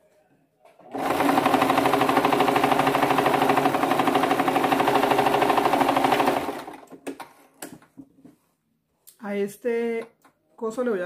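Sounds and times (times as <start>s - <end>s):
sewing machine stitching: 0.8s - 7.2s.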